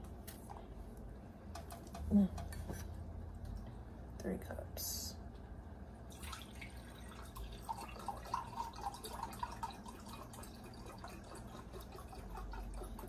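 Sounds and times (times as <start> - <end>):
liquid pouring into glass cup: 6.1 - 13.0
small splashes and drips: 6.1 - 13.0.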